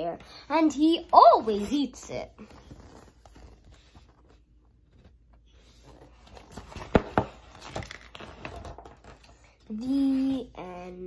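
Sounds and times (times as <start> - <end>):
book pages rustling: 2.4 - 9.6.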